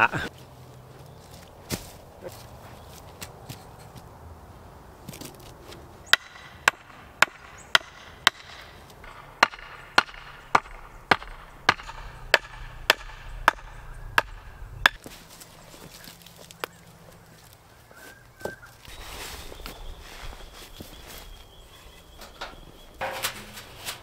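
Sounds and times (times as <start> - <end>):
wooden stake being hammered: 6.1 - 15.1.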